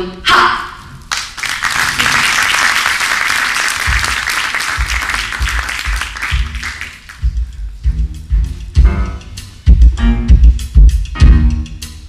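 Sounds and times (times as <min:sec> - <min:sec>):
audience applause: 0:01.1 - 0:07.2
bass playing low notes: 0:03.9 - 0:12.0.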